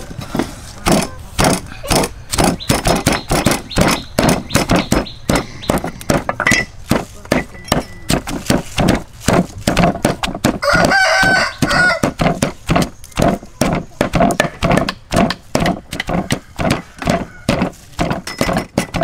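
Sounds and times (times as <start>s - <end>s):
pestle pounding in mortar: 0.0s - 19.0s
rooster crowing: 10.6s - 12.2s, 16.2s - 17.8s.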